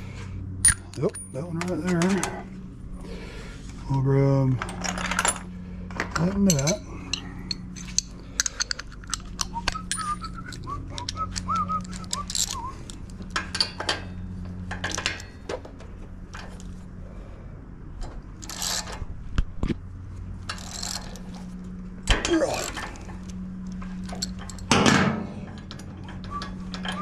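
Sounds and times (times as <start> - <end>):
ratchet and tools clicking: 6.2 - 14.0, 20.4 - 21.4
man whistling: 9.5 - 12.8, 26.2 - 27.0.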